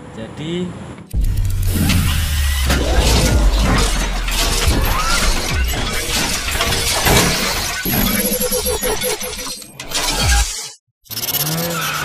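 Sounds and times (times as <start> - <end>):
steady tones: 1.1 - 9.5
crackling and whooshing noise: 1.2 - 7.8
low rumble: 1.2 - 7.9
sharp hits: 1.2 - 9.0.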